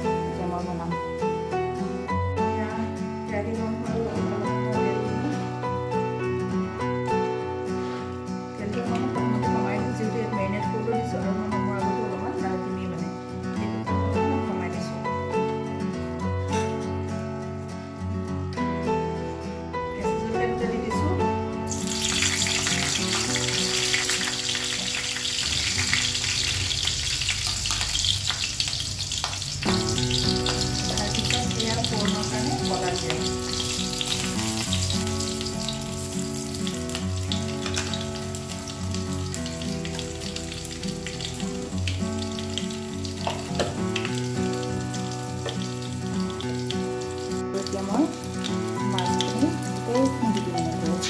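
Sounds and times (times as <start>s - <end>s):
oil sizzling in a wok: 0.0s - 1.5s, 21.7s - 51.0s
instrumental background music: 0.0s - 51.0s.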